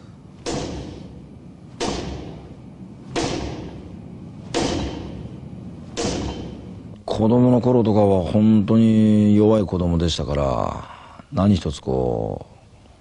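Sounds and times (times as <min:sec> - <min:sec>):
sharp thuds: 0:00.4 - 0:07.0.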